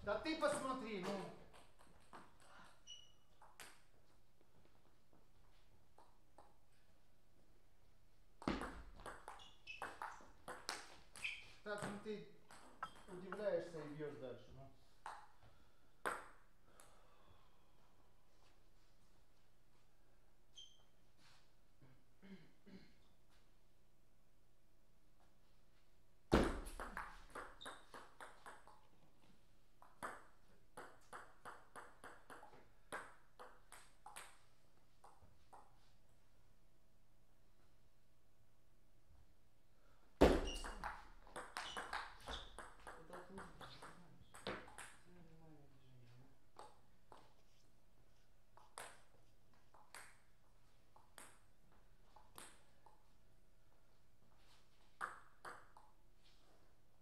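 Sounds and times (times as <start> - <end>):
table tennis ball bouncing: 0.5 - 3.9, 8.4 - 13.6, 15.0 - 15.4, 16.0 - 16.4, 26.3 - 28.9, 29.8 - 35.7, 40.2 - 45.1, 46.6 - 47.3, 48.6 - 50.3, 51.0 - 51.5, 52.1 - 53.0, 54.9 - 56.0.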